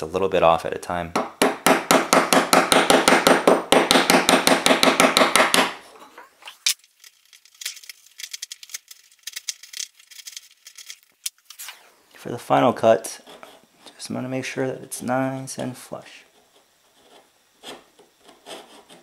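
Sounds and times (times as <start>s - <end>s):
chisel scraping wood: 16.4s - 19.0s.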